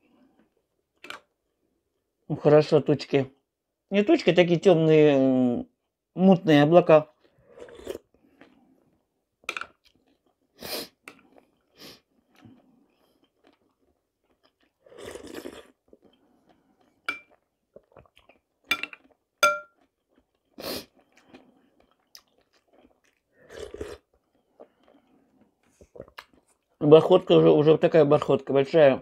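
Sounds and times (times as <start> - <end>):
person chewing: 7.2 - 26.8
metal spoon clinking on glass bowl: 17.1 - 17.4, 18.7 - 19.8.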